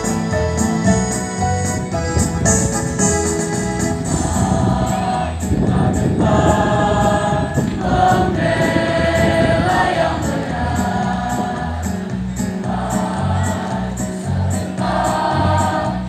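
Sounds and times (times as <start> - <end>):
electronic keyboard: 0.0 - 13.8
choir singing: 4.0 - 16.0.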